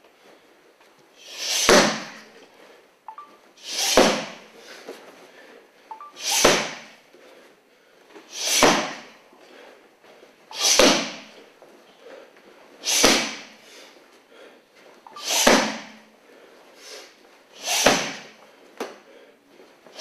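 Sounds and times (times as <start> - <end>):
strikes smacking kick pad: 1.7 - 2.1, 6.4 - 6.8, 8.6 - 9.0, 10.7 - 11.2, 13.0 - 13.4, 15.4 - 15.9, 17.8 - 18.3.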